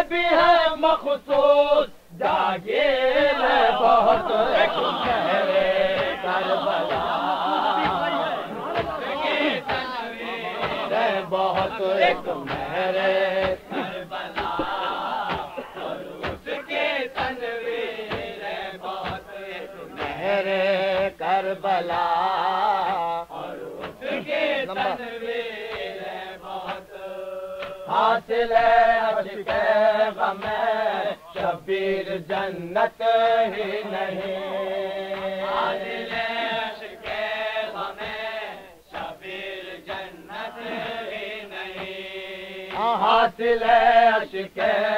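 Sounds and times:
men chanting: 0:00.0 - 0:44.9
dull thuds beat: 0:03.6 - 0:23.0, 0:23.7 - 0:26.0, 0:26.6 - 0:27.0, 0:27.6 - 0:31.7, 0:35.0 - 0:38.3.

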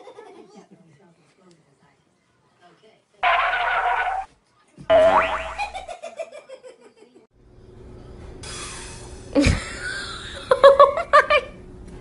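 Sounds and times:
sudden loud sound: 0:03.2 - 0:04.3
person laughing: 0:09.4 - 0:11.5.

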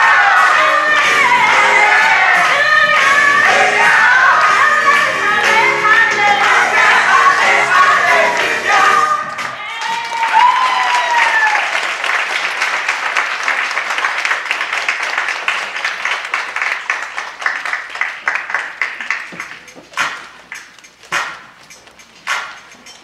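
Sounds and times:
audience applause: 0:09.5 - 0:19.7.

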